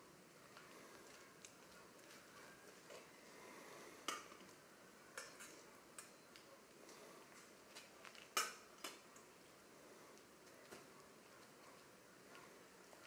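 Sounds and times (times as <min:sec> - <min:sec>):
faint clinks of metal vessels: 0:05.1 - 0:06.4.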